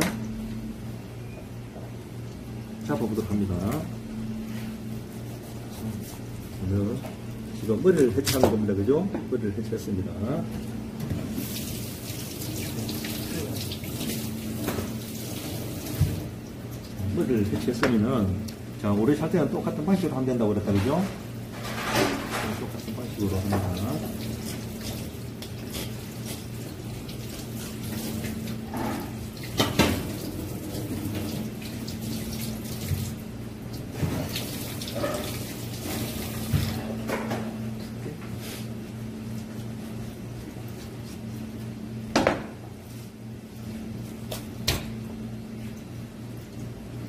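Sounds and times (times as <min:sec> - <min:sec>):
low steady hum: 0:00.0 - 0:47.0
water running: 0:11.2 - 0:19.7, 0:22.5 - 0:36.9.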